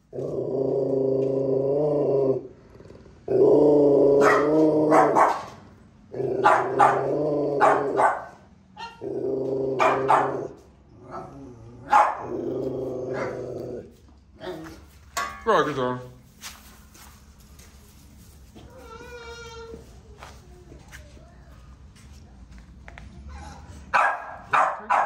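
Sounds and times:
dog growling: 0:00.0 - 0:05.2, 0:06.1 - 0:08.1, 0:09.0 - 0:14.8
dog barking sharply: 0:04.2 - 0:05.6, 0:06.4 - 0:08.4, 0:24.0 - 0:25.0.

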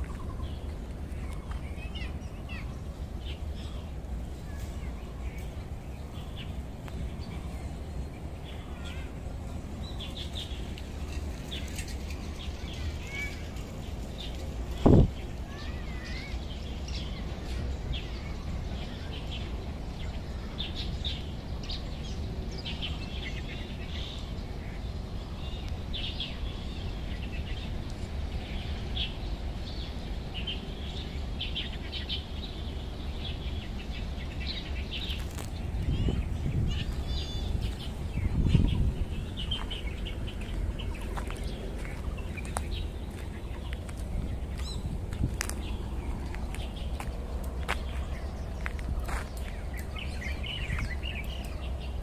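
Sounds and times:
birds chirping: 0:00.0 - 0:52.0
steady low rumble: 0:34.1 - 0:52.0.

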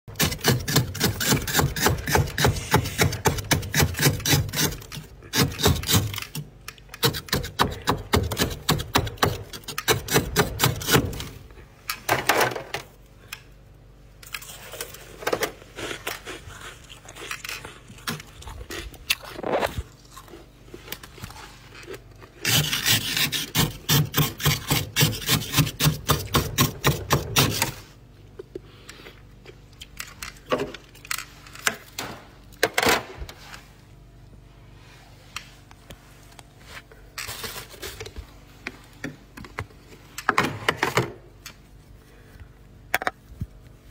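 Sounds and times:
utensil scraping frost: 0:00.1 - 0:06.4, 0:22.4 - 0:28.0.

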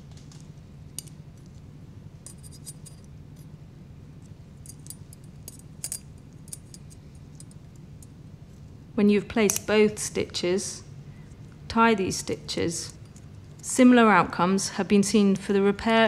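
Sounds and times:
low steady hum: 0:00.0 - 0:16.0
metal instruments clinking: 0:02.2 - 0:03.5.

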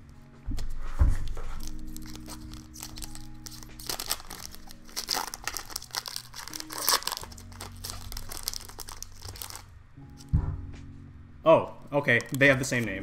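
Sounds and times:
foil wrapper crinkling: 0:01.6 - 0:09.7.

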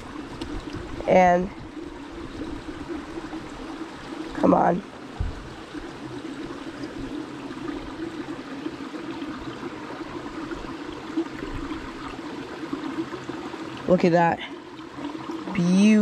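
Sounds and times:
stream running over stones: 0:00.0 - 0:16.0
low bumps: 0:05.1 - 0:05.8.

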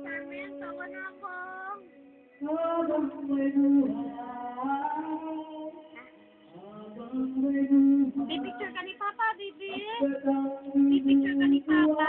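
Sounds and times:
person singing long notes: 0:00.0 - 0:08.7.

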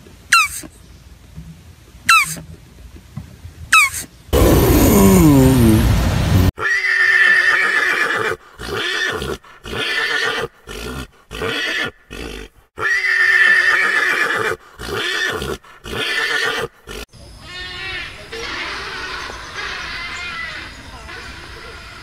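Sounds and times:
pony whinnying: 0:06.6 - 0:17.0.

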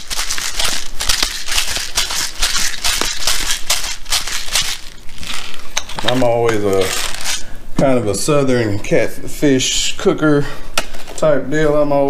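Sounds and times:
pepper shaker rattling: 0:00.0 - 0:06.1, 0:06.7 - 0:07.5.

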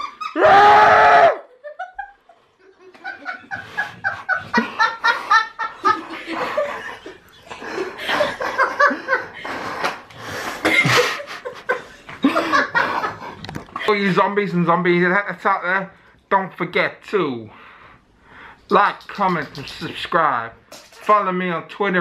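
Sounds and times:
laughter and giggles: 0:00.0 - 0:00.5, 0:01.4 - 0:09.8, 0:10.6 - 0:13.9
high-pitched scream: 0:00.3 - 0:01.5.

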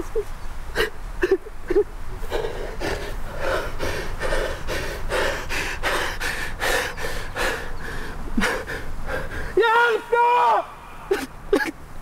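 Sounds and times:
man sobbing: 0:00.1 - 0:02.8, 0:08.3 - 0:09.7.

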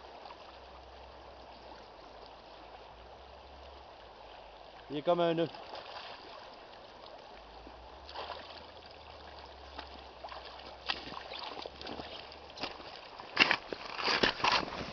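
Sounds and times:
shallow river flowing over stones: 0:00.0 - 0:14.9
person wading splashes: 0:05.5 - 0:06.7, 0:08.0 - 0:14.9.

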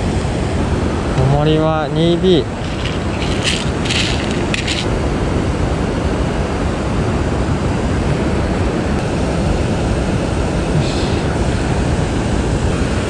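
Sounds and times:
river flowing: 0:01.9 - 0:05.8.

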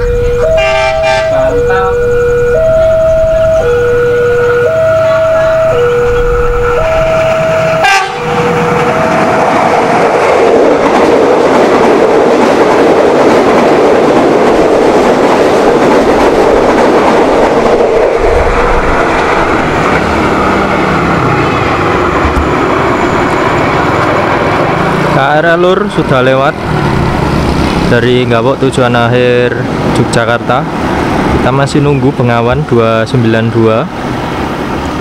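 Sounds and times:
level crossing alarm: 0:00.0 - 0:09.7
train rumble: 0:00.0 - 0:35.0
train wheel clatter: 0:04.3 - 0:32.7.

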